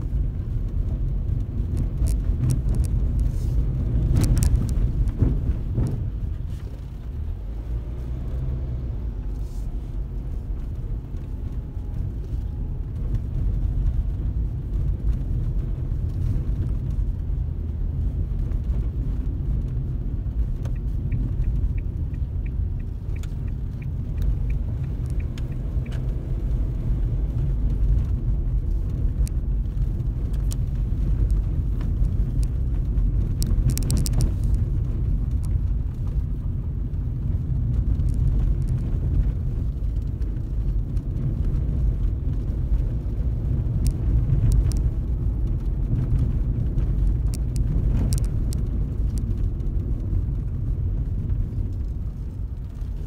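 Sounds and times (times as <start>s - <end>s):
car engine and road noise: 0.0s - 53.0s
faint regular ticking: 20.5s - 26.5s.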